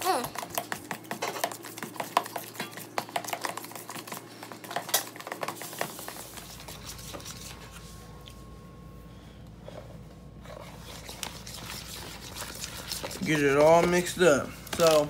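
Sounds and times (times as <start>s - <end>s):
utensil stirring batter in bowl: 0.0s - 8.4s, 10.4s - 15.0s.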